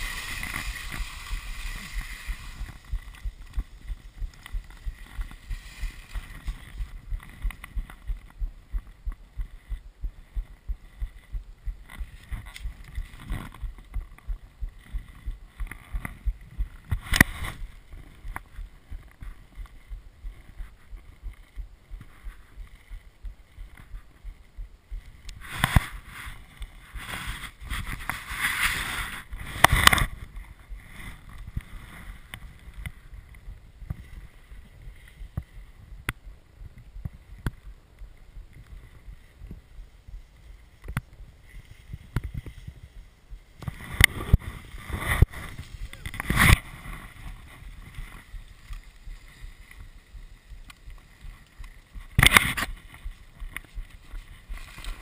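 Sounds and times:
soft low thumps: 0.0 - 26.9, 29.3 - 55.0
clothing rustling and scraping: 25.4 - 33.0, 43.6 - 50.0.

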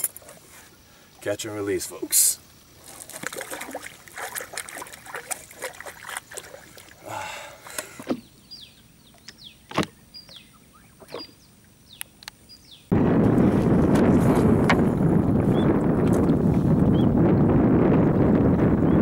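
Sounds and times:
water splashing and slapping: 2.8 - 8.2.

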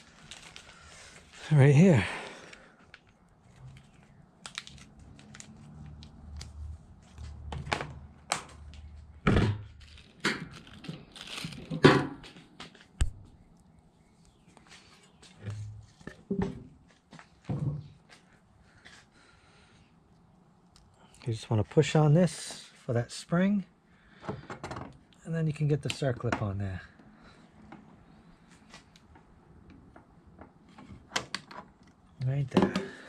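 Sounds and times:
plastic bag crinkling: 0.0 - 1.4, 3.6 - 5.7, 9.8 - 11.8.

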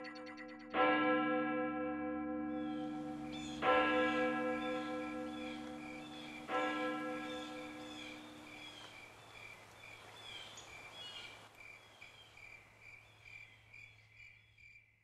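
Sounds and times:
bird chirps: 0.0 - 0.8, 2.6 - 3.7, 4.6 - 15.0
church bell ringing: 0.0 - 8.8
cricket chirping: 7.8 - 15.0.

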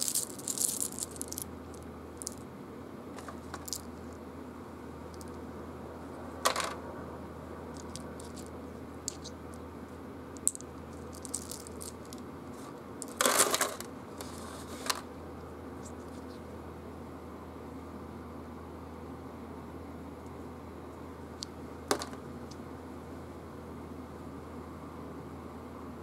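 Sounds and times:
plastic tokens clicking: 0.0 - 1.4, 10.4 - 12.2, 13.0 - 15.0
tokens clattering into tray: 0.0 - 1.4, 13.0 - 13.8.

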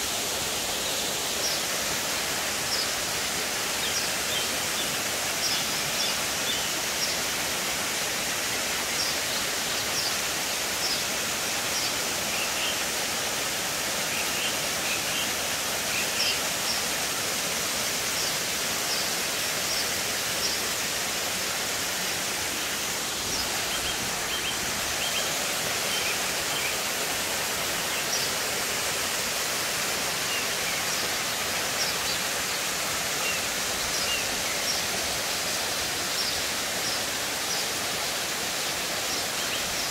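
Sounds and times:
waterfall rushing: 0.0 - 39.9.

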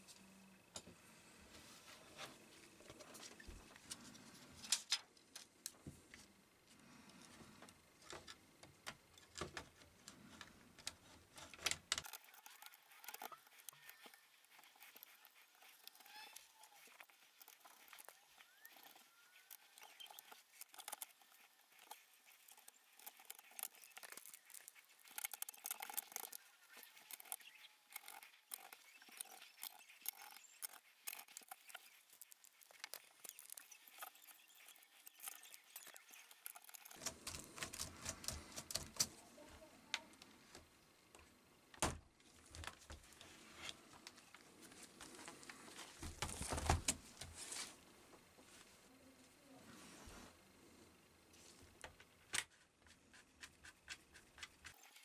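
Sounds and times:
plastic laptop parts clicking: 10.4 - 39.1.

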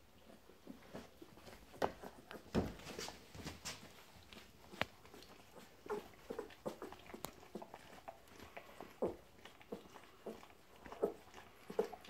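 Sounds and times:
dogs rustling on bedding: 0.6 - 9.0.

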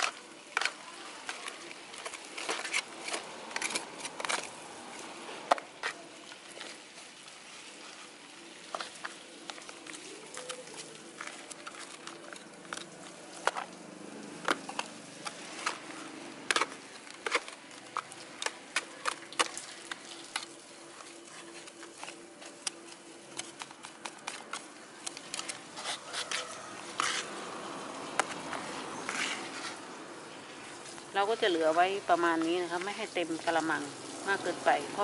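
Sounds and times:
trowel scraping soil in plastic basin: 0.0 - 4.6, 14.4 - 30.0.

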